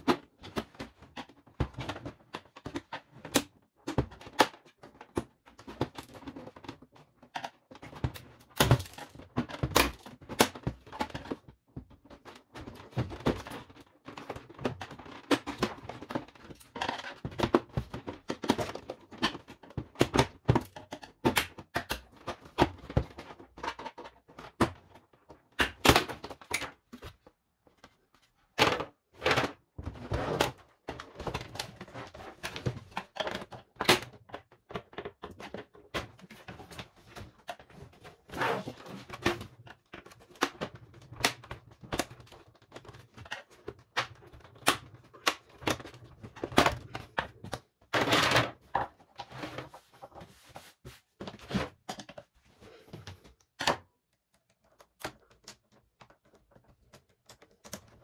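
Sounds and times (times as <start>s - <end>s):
plastic clicks and knocks: 30.4s - 49.3s, 51.2s - 58.0s.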